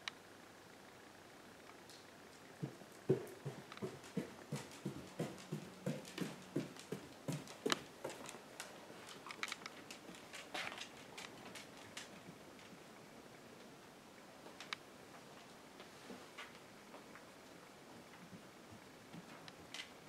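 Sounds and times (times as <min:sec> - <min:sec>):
footsteps on wooden stairs: 0:02.6 - 0:09.2
dog claws clicking on floor: 0:02.6 - 0:12.8.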